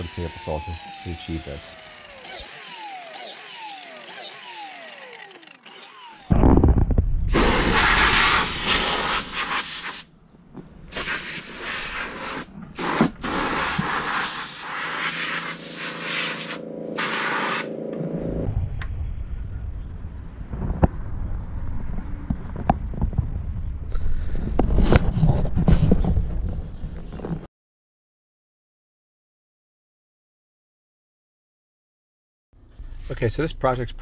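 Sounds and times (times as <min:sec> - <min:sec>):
air compressor humming: 0:00.0 - 0:06.6, 0:10.9 - 0:18.5
air gun hissing: 0:07.3 - 0:10.1, 0:10.9 - 0:17.7.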